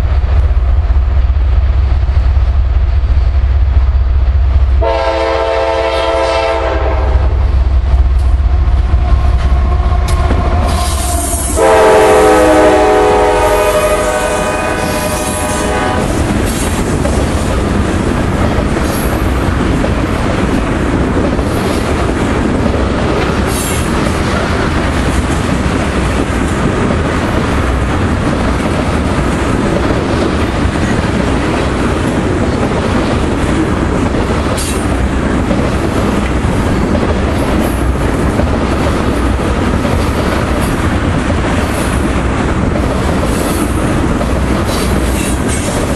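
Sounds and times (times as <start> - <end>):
train cars rumbling over rails: 0.0 - 45.9
train horn chord: 4.8 - 7.3, 9.0 - 16.2.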